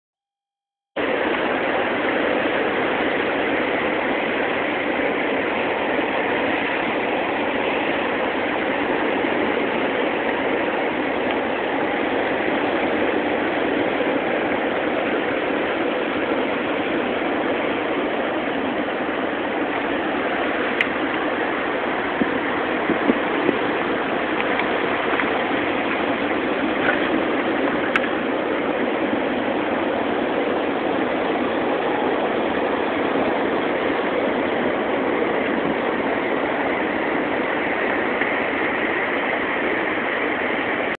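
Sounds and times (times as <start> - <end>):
water flowing: 1.0 - 40.9.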